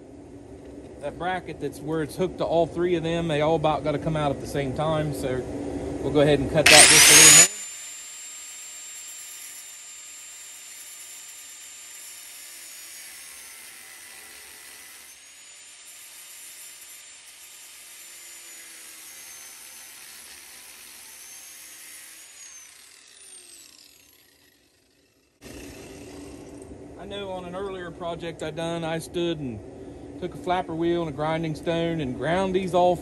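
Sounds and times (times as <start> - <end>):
angle grinder cutting steel: 6.6 - 26.6.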